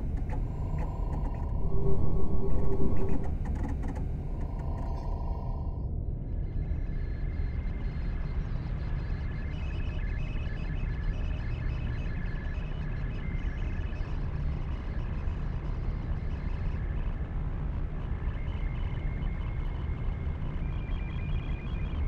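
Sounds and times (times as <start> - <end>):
pulsing electronic tones: 0.0 - 5.8
low rumbling hum: 0.0 - 6.7.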